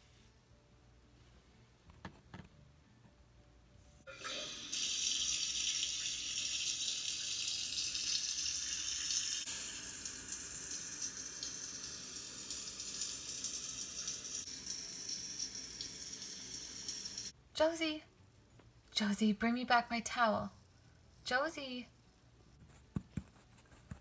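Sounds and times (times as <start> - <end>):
shower water running: 4.1 - 17.3.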